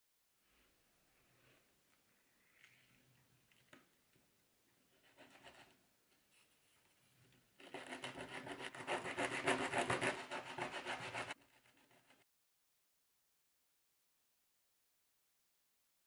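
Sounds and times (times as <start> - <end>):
wood sanding on sandpaper: 7.6 - 12.2.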